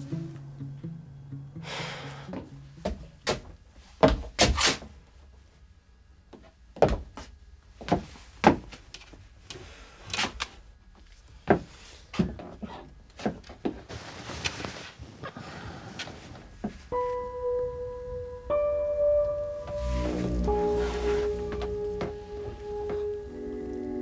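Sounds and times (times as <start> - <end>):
soft sustained music notes: 0.0 - 2.8, 16.9 - 24.0
irregular knocks and thuds: 2.3 - 4.6, 6.4 - 8.8, 21.2 - 23.1.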